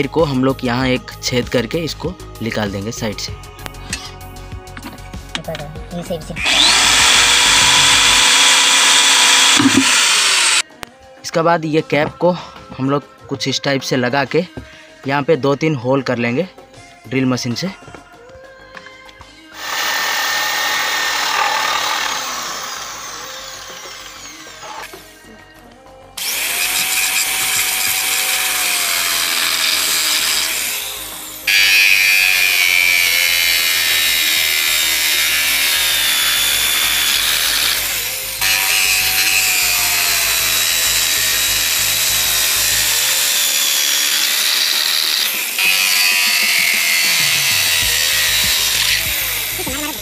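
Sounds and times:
drill hole saw cutting plastic: 6.4 - 10.7, 19.6 - 25.1, 26.2 - 50.0.

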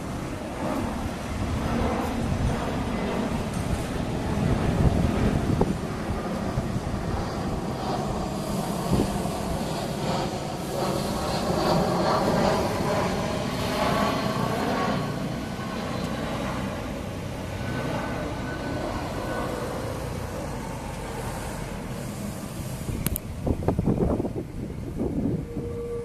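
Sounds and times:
street traffic rumble: 0.0 - 26.0
electric tram running: 18.3 - 26.0.

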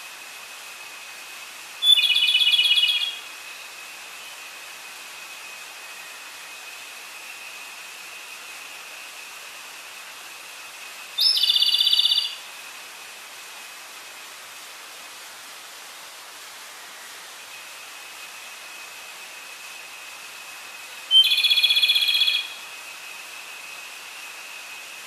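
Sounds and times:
steady hiss: 0.0 - 25.0
small bird singing a rapid trill: 1.8 - 3.2, 11.2 - 12.4, 21.1 - 22.6.

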